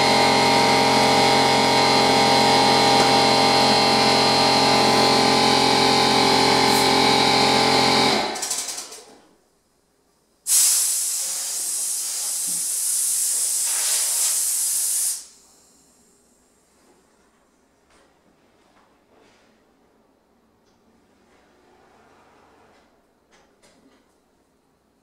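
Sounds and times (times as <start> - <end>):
air compressor running: 0.0 - 9.3, 10.5 - 16.9
spray gun hissing air: 10.5 - 15.8.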